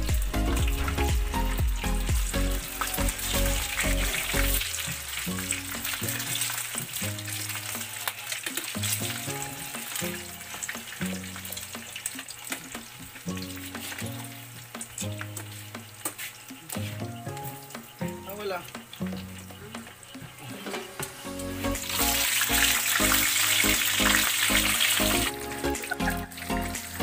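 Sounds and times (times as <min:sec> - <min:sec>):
background music with heavy beat: 0:00.0 - 0:07.0
food sizzling in a pan: 0:00.0 - 0:27.0.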